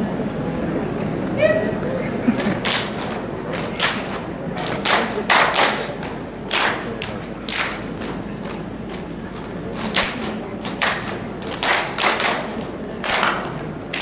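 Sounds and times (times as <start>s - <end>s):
dancers clapping and body slapping: 2.3s - 14.0s.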